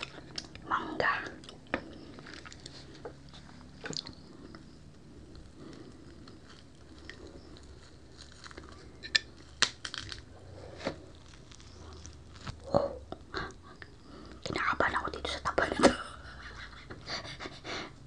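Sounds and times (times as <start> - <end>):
crunching crispy pork: 0.0 - 0.7, 1.3 - 14.5
quiet chewing: 0.0 - 14.6
sharp crackles: 5.3 - 10.3, 11.0 - 12.8.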